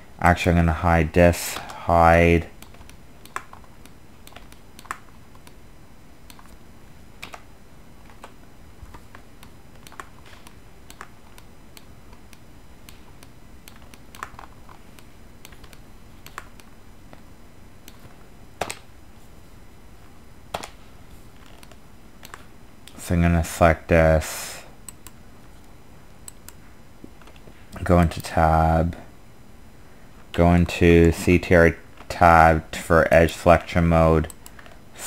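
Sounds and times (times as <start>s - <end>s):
steady background hiss: 0.0s - 35.0s
keyboard and mouse clicks: 2.6s - 5.6s, 6.2s - 6.6s, 7.2s - 7.5s, 8.1s - 16.7s, 24.9s - 25.2s.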